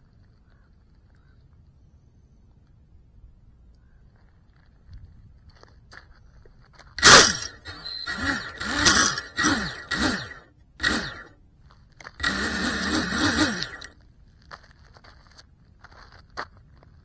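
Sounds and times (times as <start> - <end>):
quadcopter motors whining: 7.0 - 11.4, 12.1 - 14.0.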